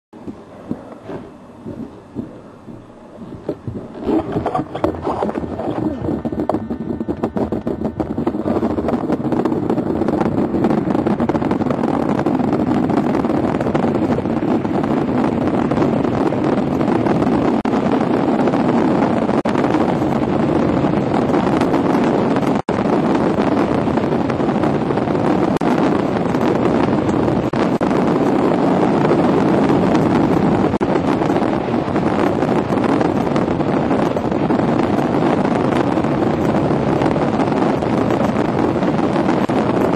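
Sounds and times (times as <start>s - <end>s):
wind rushing over microphone: 0.1s - 39.9s
sled runners scraping ice: 3.4s - 6.2s.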